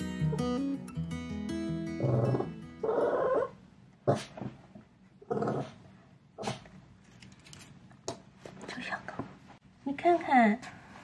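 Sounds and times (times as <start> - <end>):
acoustic guitar music: 0.0 - 3.5.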